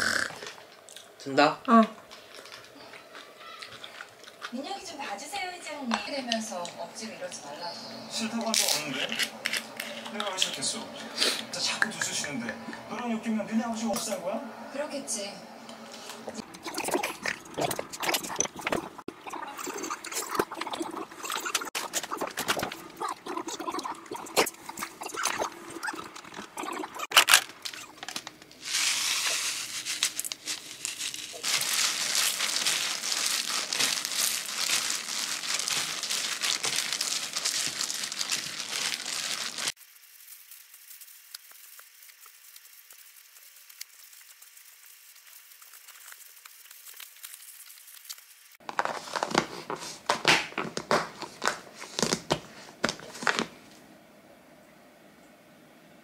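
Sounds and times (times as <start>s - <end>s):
thin plastic crinkling: 2.1s - 6.8s, 19.7s - 53.6s.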